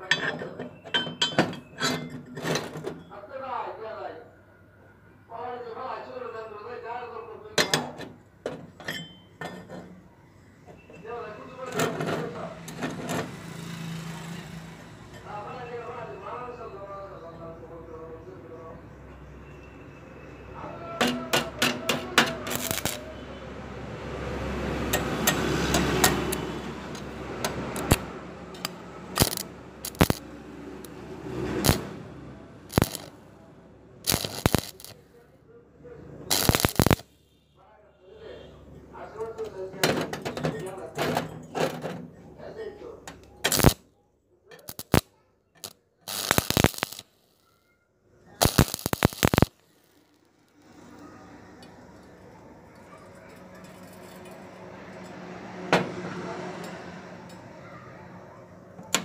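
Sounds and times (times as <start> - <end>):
welding electrode clicks and taps: 21.0 - 23.1, 24.9 - 30.2, 31.6 - 31.9, 32.7 - 33.2, 34.1 - 35.0, 36.3 - 37.0, 43.1 - 43.8, 44.6 - 45.0, 45.6 - 47.4, 48.4 - 50.3
welding arc sputtering: 21.0 - 23.2, 25.2 - 33.2, 34.0 - 35.1, 36.3 - 37.1, 43.5 - 43.8, 44.6 - 47.4, 48.4 - 50.6.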